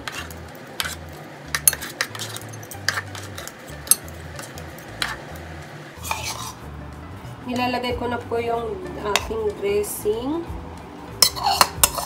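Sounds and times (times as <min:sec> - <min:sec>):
metal spoon scraping and tapping: 0:00.0 - 0:05.4, 0:06.0 - 0:06.6, 0:09.1 - 0:09.6, 0:11.2 - 0:12.0.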